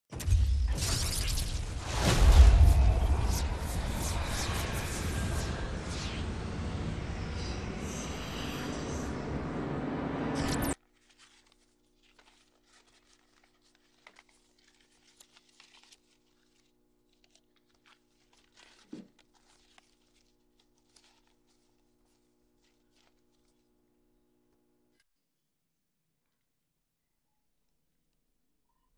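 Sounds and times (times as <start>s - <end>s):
loud rushing noise: 1.6s - 10.8s.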